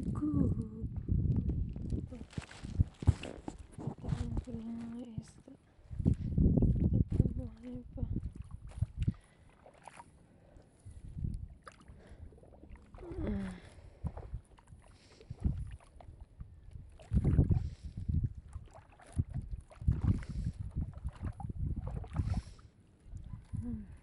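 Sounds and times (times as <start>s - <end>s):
wind rumble on microphone: 0.0s - 9.3s, 10.8s - 24.0s
wading in water: 0.0s - 24.0s
seawater sloshing and lapping: 1.3s - 24.0s.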